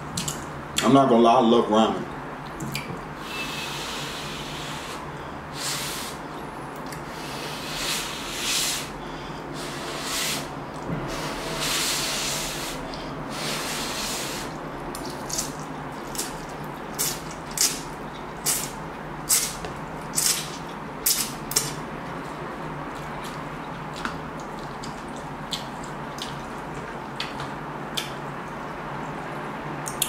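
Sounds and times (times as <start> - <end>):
person slurping noodles: 7.0 - 9.0, 9.6 - 14.6.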